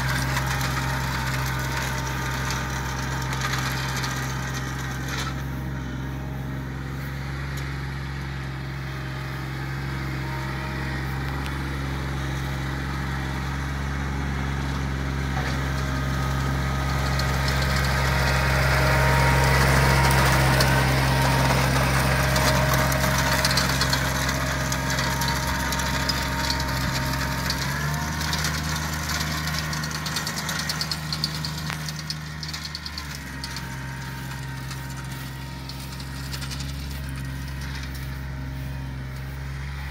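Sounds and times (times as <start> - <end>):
aerator rattling: 0.0 - 5.6, 15.3 - 39.9
tractor diesel engine running: 0.0 - 39.9.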